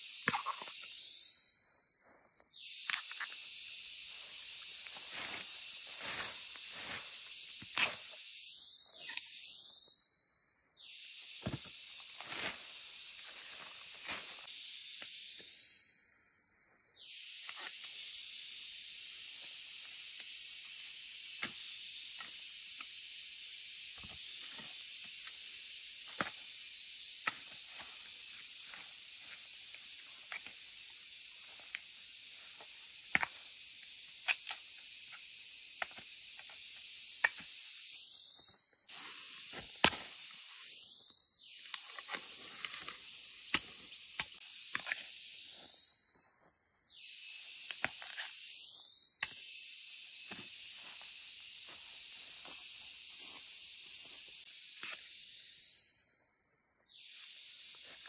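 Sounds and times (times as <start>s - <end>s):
high-pitched outdoor hiss: 0.0s - 58.0s.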